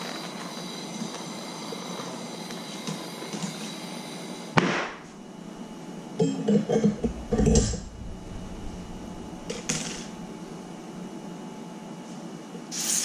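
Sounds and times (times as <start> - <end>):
torch flame hissing: 0.0 - 6.2, 6.9 - 11.4, 12.7 - 13.0
torch flame cut off pop: 4.6 - 5.1.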